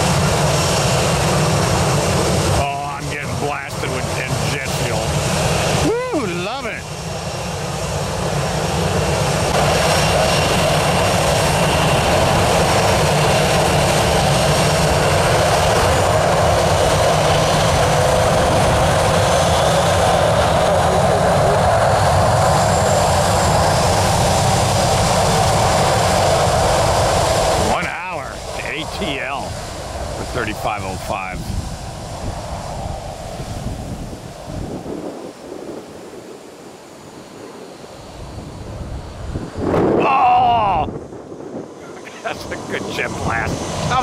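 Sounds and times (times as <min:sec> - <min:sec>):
jet engines running: 0:00.0 - 0:44.0.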